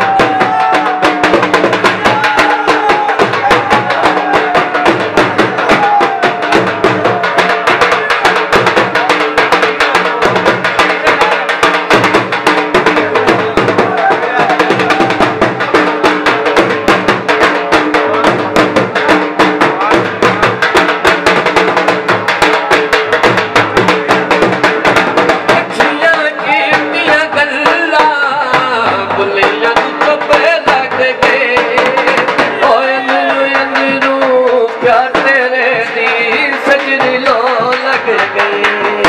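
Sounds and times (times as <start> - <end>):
dhol drum beating fast rhythm: 0.0 - 39.0.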